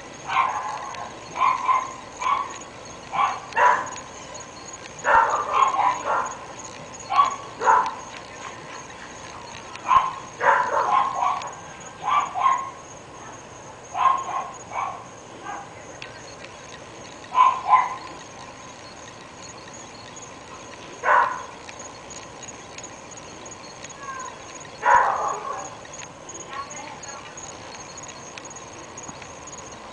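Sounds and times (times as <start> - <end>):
dogs barking: 0.2 - 12.9, 13.9 - 15.9, 17.2 - 18.5, 20.5 - 22.5, 23.9 - 27.5.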